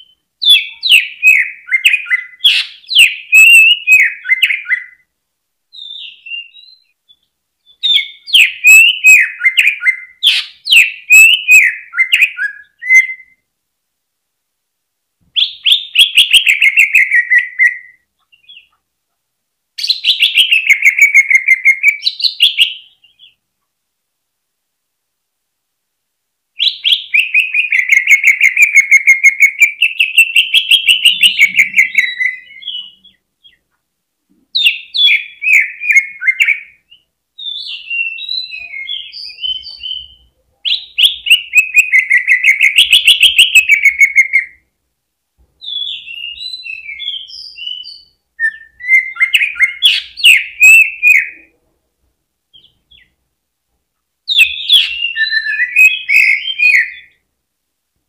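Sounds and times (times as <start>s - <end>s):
bird singing trilled phrases: 0.0s - 5.1s, 5.7s - 13.4s, 15.4s - 18.8s, 19.8s - 23.4s, 26.6s - 33.7s, 34.6s - 44.6s, 45.6s - 51.5s, 54.3s - 57.2s.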